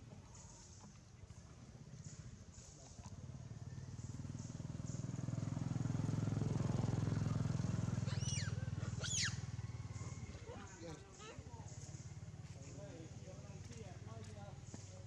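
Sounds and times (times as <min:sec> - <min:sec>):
motorbike engine passing: 0:03.1 - 0:15.0
short high-pitched calls: 0:08.1 - 0:09.4.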